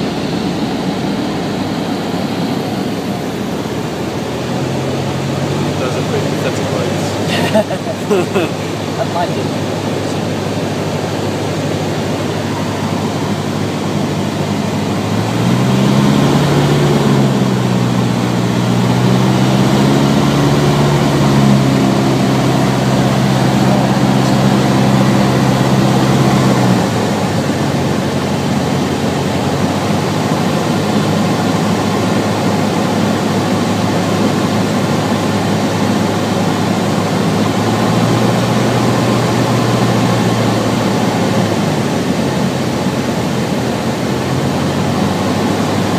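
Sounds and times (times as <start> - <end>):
airflow noise: 0.0 - 28.8
deep droning tone: 0.0 - 30.2
airplane engine and propeller: 0.0 - 45.9.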